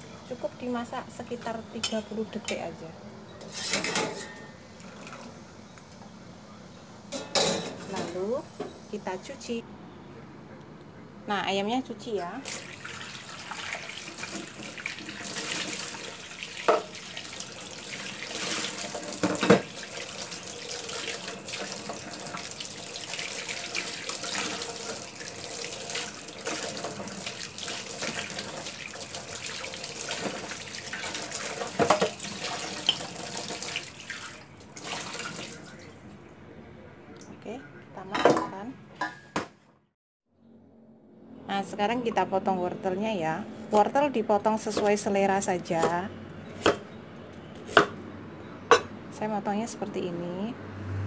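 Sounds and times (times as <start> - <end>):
tap running into metal sink: 18.4 - 19.8.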